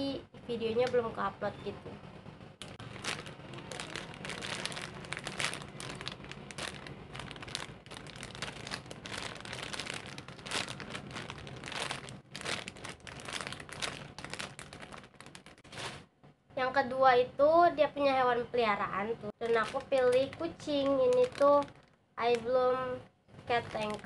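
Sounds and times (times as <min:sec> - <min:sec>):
plastic bag crinkling: 0:02.6 - 0:16.0, 0:19.4 - 0:22.5, 0:23.5 - 0:24.0.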